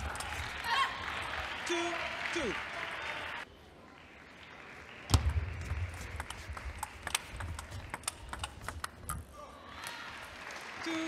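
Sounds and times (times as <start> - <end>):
table tennis ball clicking: 6.2 - 9.2.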